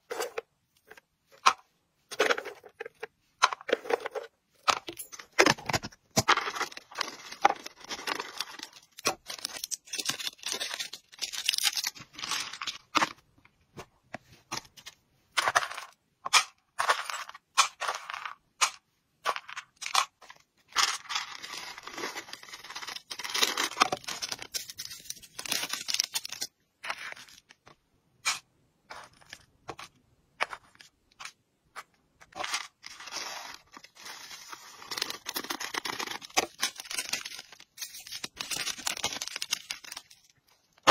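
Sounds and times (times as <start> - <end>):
plastic bags crinkling: 32.8 - 40.9.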